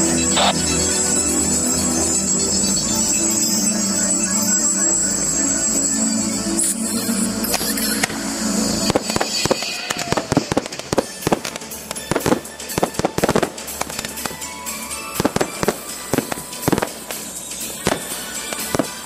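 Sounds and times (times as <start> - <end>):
fireworks hiss and crackle: 6.6 - 19.0
fireworks bangs: 7.5 - 19.0.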